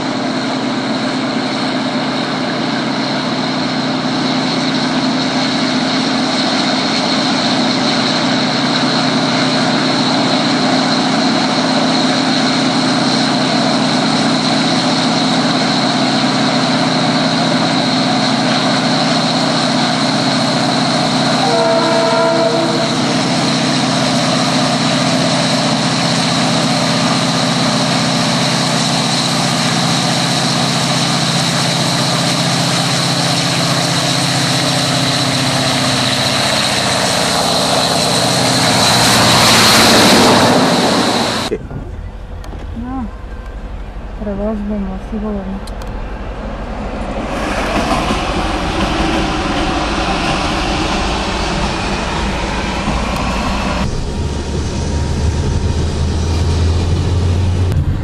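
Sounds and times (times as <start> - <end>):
diesel locomotive engine running: 0.0 - 58.0
train horn blast: 21.2 - 24.1.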